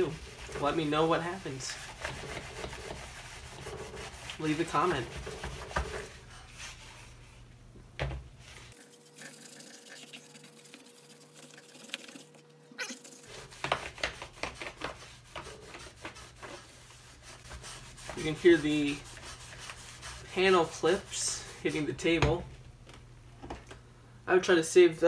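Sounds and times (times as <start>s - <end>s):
eraser scrubbing a door panel: 0.0s - 6.2s, 13.0s - 21.9s.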